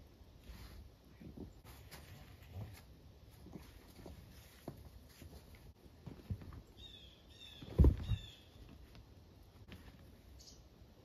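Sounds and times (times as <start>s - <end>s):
bird chirping: 6.6s - 8.6s, 10.3s - 10.7s
dull thumps: 7.6s - 8.8s.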